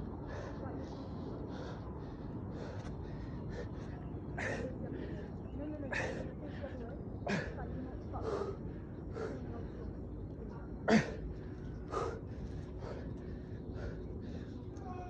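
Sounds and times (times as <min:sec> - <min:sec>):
man gasping breaths: 0:10.9 - 0:14.7.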